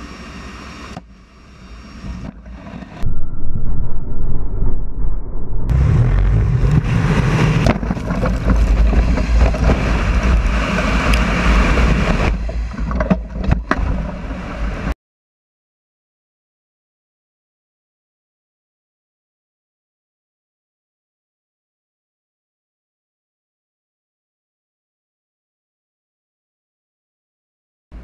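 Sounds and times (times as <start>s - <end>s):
aircraft engines droning: 0.0s - 8.2s
wind buffeting microphone: 3.0s - 14.9s.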